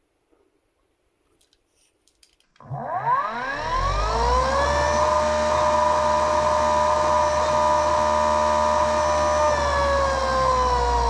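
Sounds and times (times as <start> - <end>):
electric motor whine: 2.6 - 11.0.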